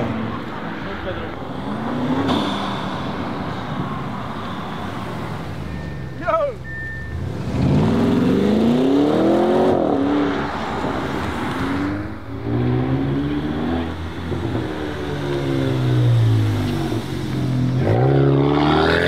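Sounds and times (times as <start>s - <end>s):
car engine approaching: 0.0s - 19.0s
car accelerating hard: 7.2s - 19.0s.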